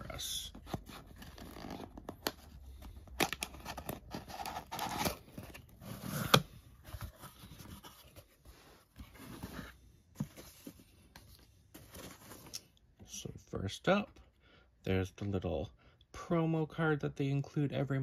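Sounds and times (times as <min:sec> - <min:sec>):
cardboard box handling: 0:00.5 - 0:12.6.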